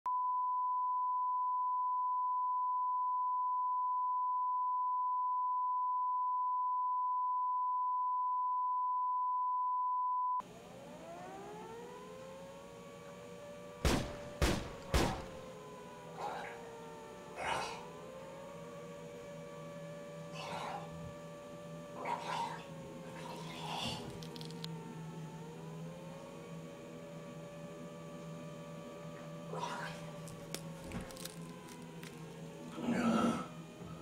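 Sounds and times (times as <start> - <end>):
hum rising in pitch: 10.4 - 34.0.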